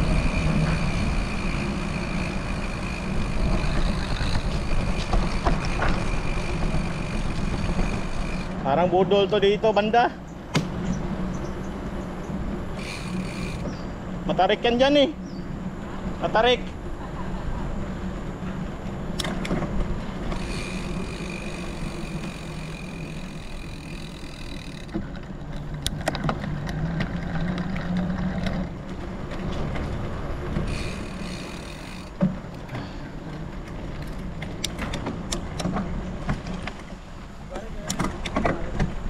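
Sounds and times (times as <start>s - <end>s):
bike rumbling over rough ground: 0.0s - 9.9s, 10.7s - 16.1s, 18.1s - 39.0s
rattling clicks: 20.3s - 26.4s, 30.6s - 32.8s.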